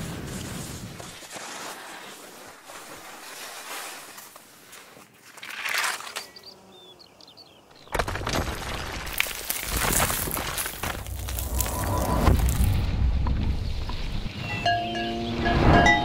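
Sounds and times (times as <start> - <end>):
skis hissing over snow: 0.0 - 6.0
skis scraping across rock: 0.0 - 6.4, 9.2 - 12.8.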